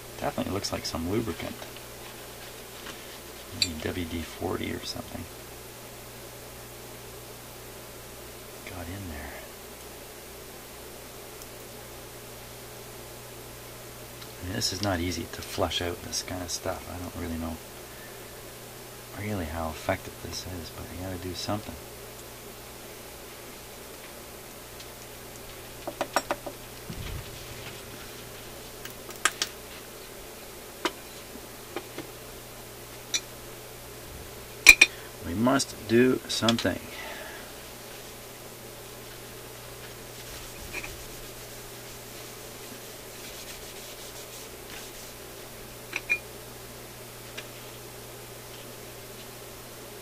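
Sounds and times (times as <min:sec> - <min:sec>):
soft thump: 0:26.9 - 0:27.8
paper towel rubbing on mechanism: 0:26.9 - 0:28.8, 0:39.8 - 0:45.4.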